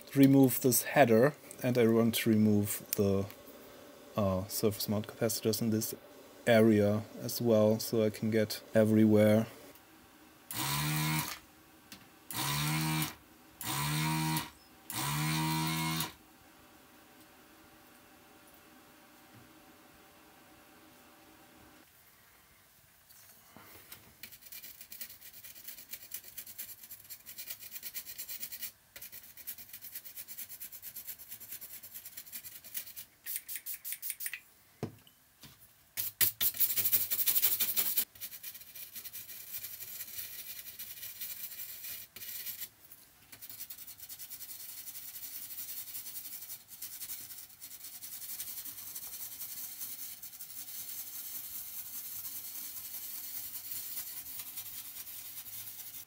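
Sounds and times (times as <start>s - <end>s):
pen scratching circuit board: 24.2s - 34.3s, 36.0s - 42.7s, 43.3s - 56.0s.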